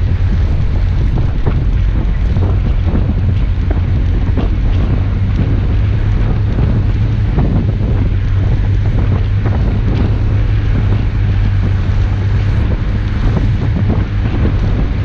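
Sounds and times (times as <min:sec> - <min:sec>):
car engine droning: 0:00.0 - 0:15.0
tyre noise: 0:00.0 - 0:15.0
wind rumbling on microphone: 0:00.0 - 0:15.0.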